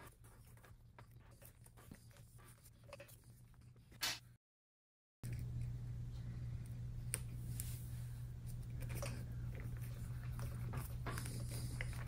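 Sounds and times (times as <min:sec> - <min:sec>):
low steady hum: 0:05.2 - 0:12.0.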